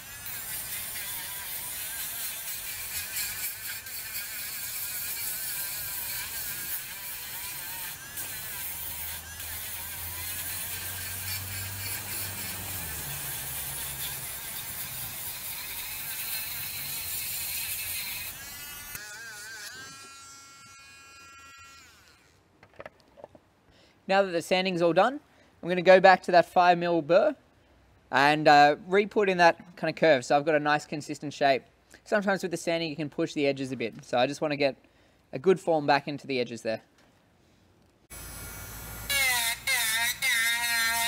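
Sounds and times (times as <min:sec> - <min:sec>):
rotary tool whining: 0:00.0 - 0:23.4, 0:38.1 - 0:41.0.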